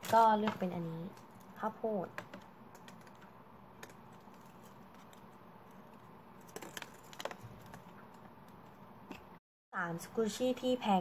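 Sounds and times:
low room hum: 0:00.0 - 0:11.0
small crackles and clicks: 0:00.5 - 0:08.7.

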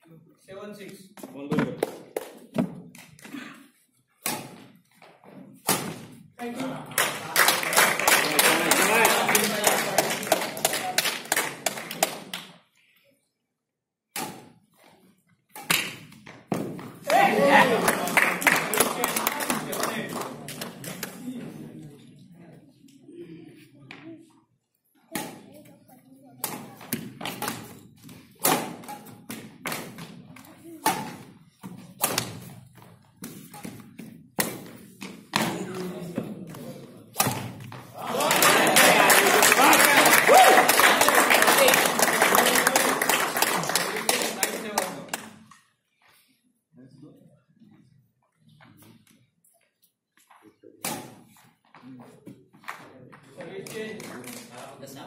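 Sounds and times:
hand claps echoing in hall: 0:01.7 - 0:03.2, 0:06.5 - 0:12.8, 0:16.8 - 0:21.4, 0:37.9 - 0:45.6, 0:52.6 - 0:54.8
rackets hitting shuttlecock: 0:04.2 - 0:04.7, 0:05.5 - 0:06.2, 0:14.1 - 0:14.6, 0:15.5 - 0:17.1, 0:25.1 - 0:25.6, 0:26.4 - 0:32.6, 0:37.1 - 0:38.0, 0:50.8 - 0:51.4.

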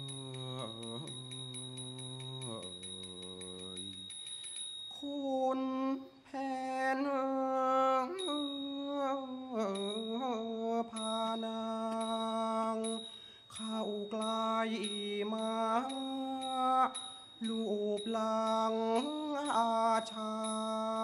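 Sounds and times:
faint regular ticks: 0:00.0 - 0:05.0, 0:10.9 - 0:21.0
high steady ringing tone: 0:00.0 - 0:21.0
wordless classical singing: 0:05.0 - 0:21.0.

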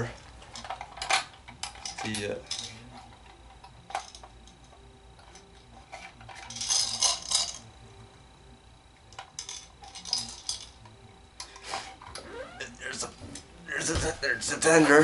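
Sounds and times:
toy train part clicking and rattling: 0:00.5 - 0:02.8, 0:05.2 - 0:07.6, 0:09.1 - 0:10.8.

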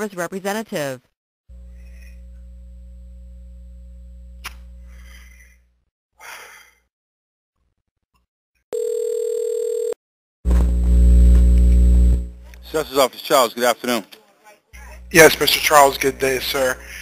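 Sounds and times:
telephone line hum: 0:01.5 - 0:04.9, 0:08.8 - 0:12.4
loud telephone tone: 0:08.7 - 0:10.0
telephone ringing tone: 0:08.7 - 0:10.0.

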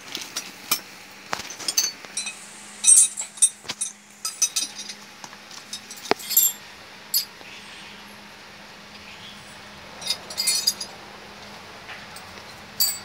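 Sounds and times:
metal engine parts clinking: 0:00.0 - 0:07.3, 0:10.0 - 0:11.0, 0:12.1 - 0:13.0.

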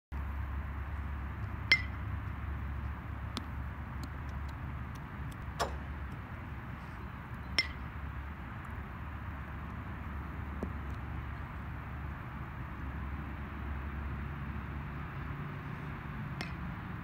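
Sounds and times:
steady low hum: 0:00.2 - 0:17.0
metal bat hitting ball: 0:01.7 - 0:02.0, 0:05.6 - 0:06.0.

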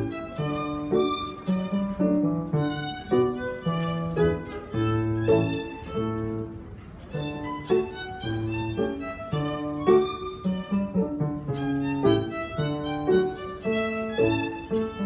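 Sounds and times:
violin playing a gavotte: 0:00.0 - 0:15.0.

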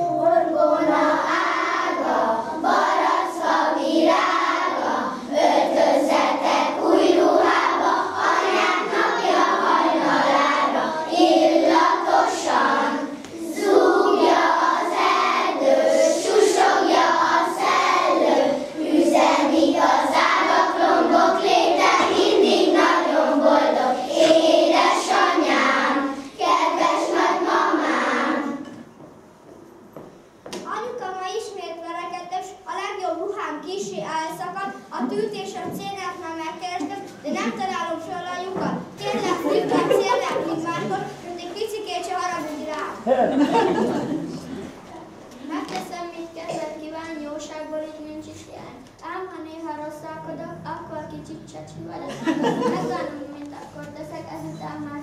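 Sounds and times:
children singing: 0:00.0 - 0:28.8.

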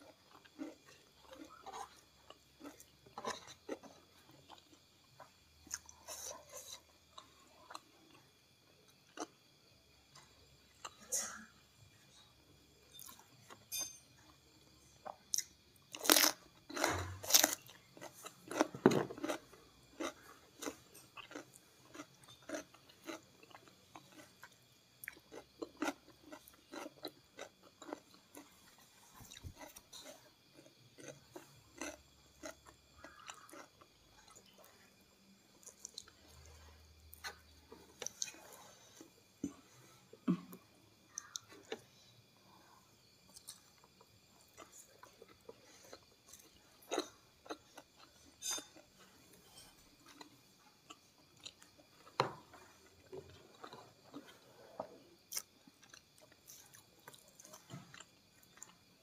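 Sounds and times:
crunchy bites into vegetable: 0:15.3 - 0:19.4
chewing with wet mouth clicks: 0:20.0 - 0:28.5, 0:29.2 - 0:34.5, 0:35.6 - 0:36.5, 0:41.1 - 0:41.8, 0:50.0 - 0:52.2, 0:55.3 - 0:58.8.

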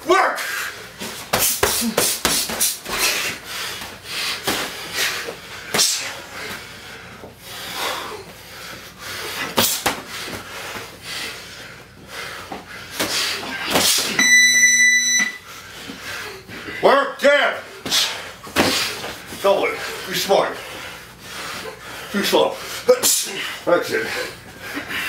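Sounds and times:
boxing gloves slapping: 0:01.0 - 0:06.6, 0:09.4 - 0:11.0, 0:12.5 - 0:14.2, 0:17.8 - 0:19.3
electronic timer beep: 0:14.2 - 0:15.4.

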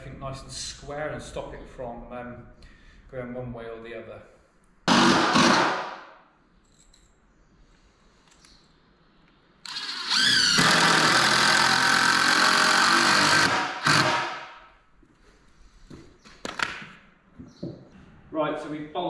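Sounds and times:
impact driver driving screw: 0:04.9 - 0:05.8, 0:09.6 - 0:14.5.

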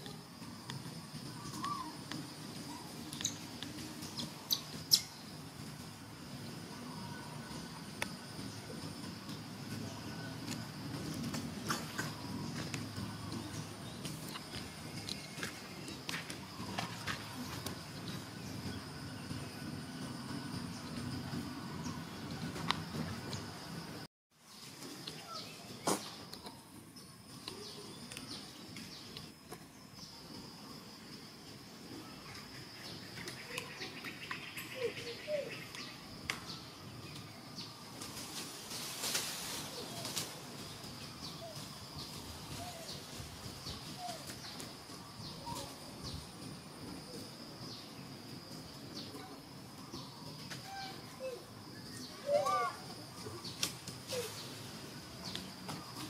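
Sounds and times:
steady high insect buzz: 0:00.0 - 0:56.0
bird chirps: 0:01.2 - 0:05.4.

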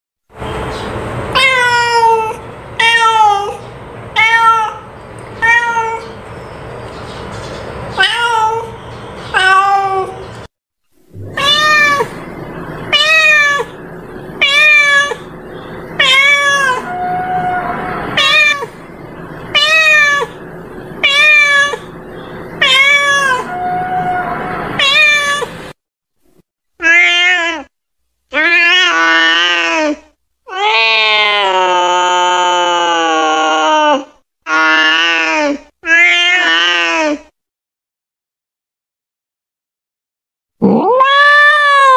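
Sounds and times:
cats meowing: 0:01.4 - 0:03.6, 0:04.2 - 0:06.2, 0:08.0 - 0:10.4, 0:11.2 - 0:25.7, 0:40.6 - 0:41.9.

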